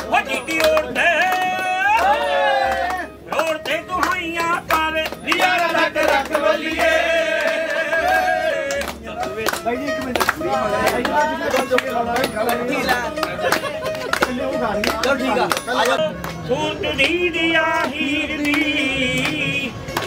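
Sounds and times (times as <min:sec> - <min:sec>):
men clapping along: 0:00.0 - 0:20.0
plucked string instrument: 0:00.0 - 0:20.0
man singing a folk song: 0:14.4 - 0:19.9.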